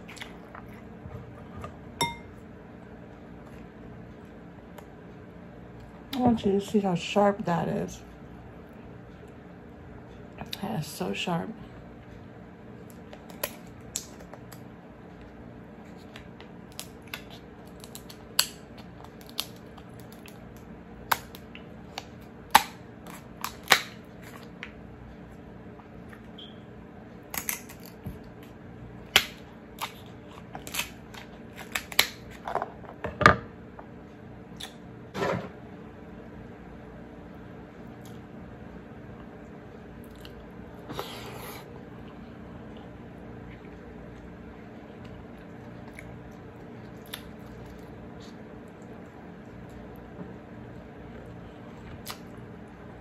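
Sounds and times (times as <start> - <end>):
faint steady hum: 0.0 - 53.0
scissors cracking crab shell: 12.9 - 14.6, 16.7 - 24.5, 27.3 - 28.0, 29.1 - 32.4.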